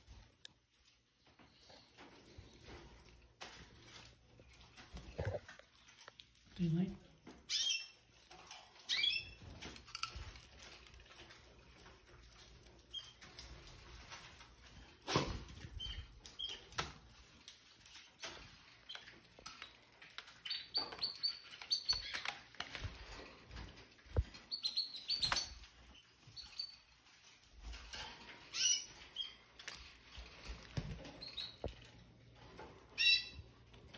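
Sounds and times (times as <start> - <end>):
canaries chirping: 6.6 - 14.8, 15.5 - 33.9.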